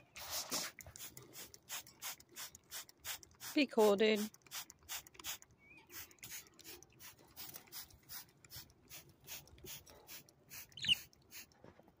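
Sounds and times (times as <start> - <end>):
parrot chirp: 10.7 - 11.1.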